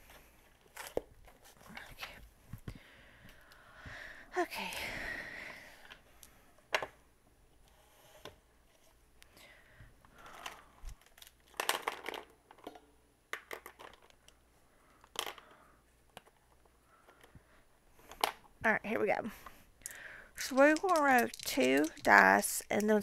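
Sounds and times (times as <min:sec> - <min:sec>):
hands clicking and tapping on table: 0:19.8 - 0:23.0.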